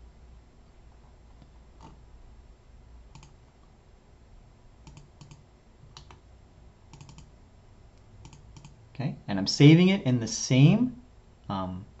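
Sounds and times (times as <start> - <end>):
low room hum: 0.0 - 12.0
computer mouse clicks: 3.1 - 3.4, 4.8 - 6.2, 6.9 - 7.3, 8.2 - 8.8.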